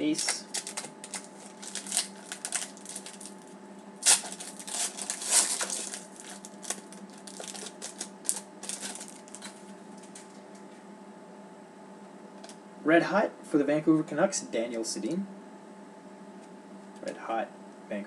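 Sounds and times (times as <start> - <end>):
foil pack tearing and crinkling: 0.2 - 10.3.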